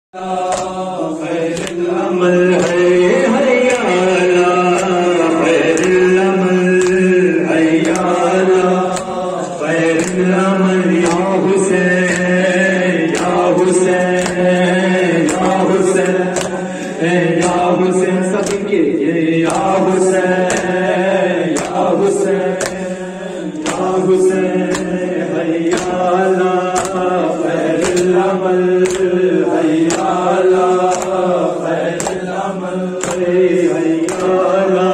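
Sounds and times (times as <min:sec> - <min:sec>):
man chanting a lament: 0:00.2 - 0:34.9
chest beating slaps: 0:00.4 - 0:00.9, 0:13.1 - 0:17.7, 0:18.4 - 0:18.8, 0:20.4 - 0:23.0, 0:23.6 - 0:24.0, 0:24.6 - 0:26.1, 0:26.7 - 0:31.2, 0:31.9 - 0:32.4, 0:33.0 - 0:33.4, 0:34.0 - 0:34.4.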